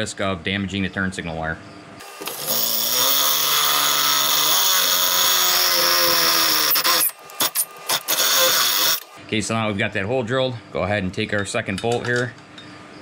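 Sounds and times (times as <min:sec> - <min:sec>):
cordless drill boring through metal: 0:02.0 - 0:09.1.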